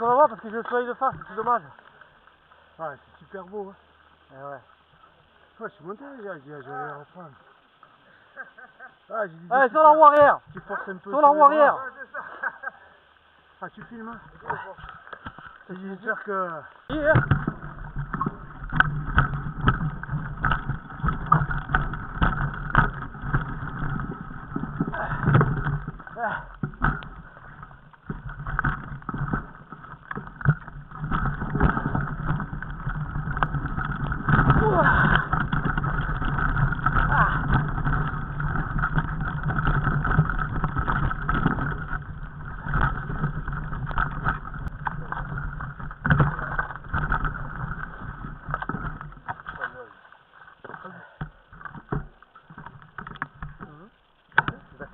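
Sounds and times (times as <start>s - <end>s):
steady rumble: 16.8s - 49.9s
camera handling knocks and rattles: 17.1s - 49.6s.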